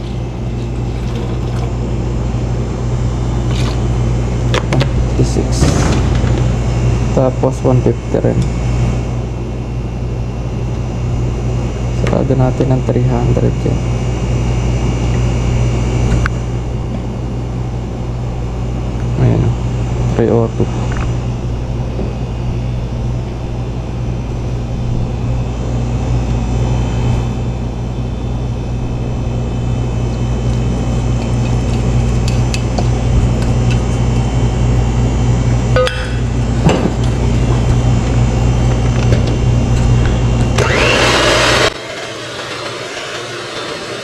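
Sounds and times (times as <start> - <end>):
low machine hum: 0.0 - 44.0
electric hand mixer whirring: 36.4 - 44.0.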